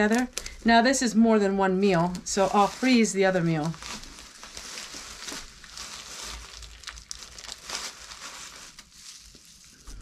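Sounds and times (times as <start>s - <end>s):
plastic wrapper crinkling: 0.0s - 10.0s.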